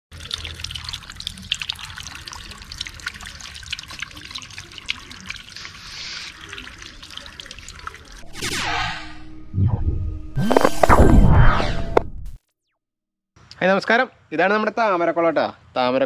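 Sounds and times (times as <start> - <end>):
water trickling and splashing: 0.1 - 8.2.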